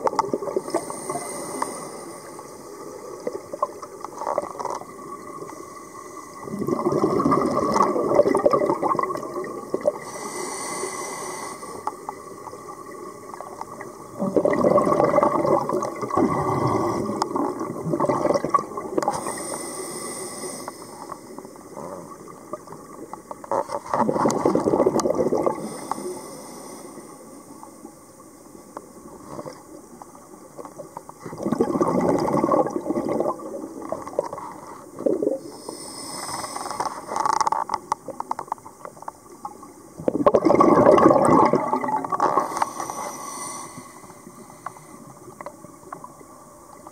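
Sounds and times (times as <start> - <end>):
exhaled bubbles rushing underwater: 0.0 - 1.4, 6.3 - 10.1, 12.0 - 19.4, 23.9 - 25.8, 30.5 - 35.6, 39.3 - 42.7
hissing inhalation through regulator: 0.6 - 3.2, 9.8 - 12.6, 19.0 - 22.2, 25.4 - 27.5, 34.5 - 37.2, 41.5 - 45.4.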